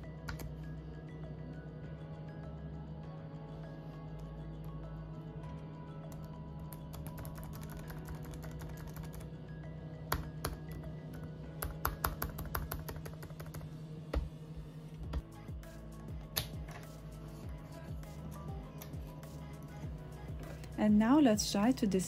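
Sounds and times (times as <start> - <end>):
background music: 0.0 - 22.0
laptop keyboard clicks: 11.6 - 13.7.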